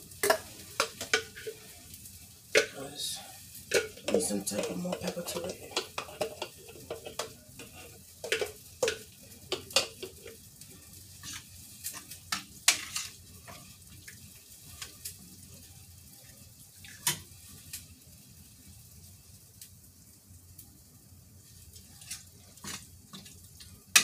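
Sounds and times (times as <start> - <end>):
utensils clinking against pots: 3.7 - 10.4.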